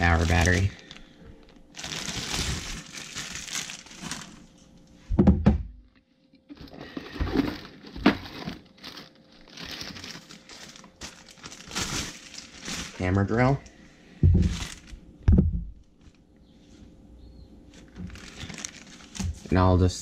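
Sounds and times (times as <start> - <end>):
nylon tool bag rustling: 0.0 - 1.0, 1.7 - 4.5, 6.6 - 13.2, 14.4 - 14.9, 17.8 - 19.6
plastic wrapping crinkling: 0.0 - 4.8, 6.6 - 13.6, 14.2 - 15.1, 17.7 - 19.7.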